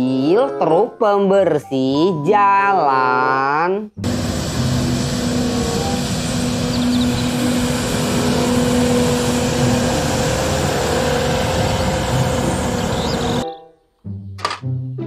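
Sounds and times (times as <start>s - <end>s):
street sweeper truck drone: 4.0s - 13.4s.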